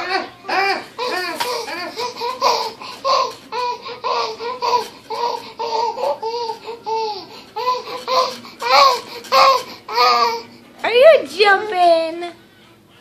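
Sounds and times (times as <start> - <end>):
baby laughing: 0.0 - 10.5.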